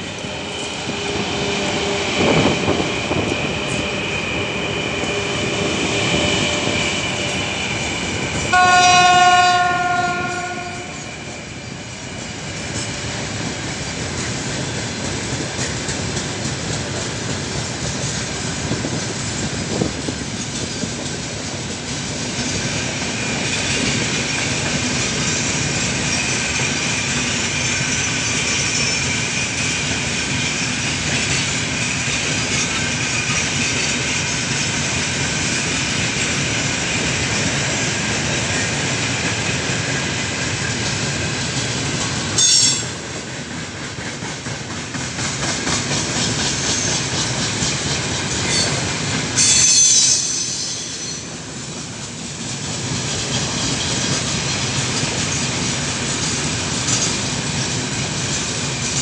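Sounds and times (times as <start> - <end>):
train horn: 8.5 - 11.2, 42.4 - 42.9.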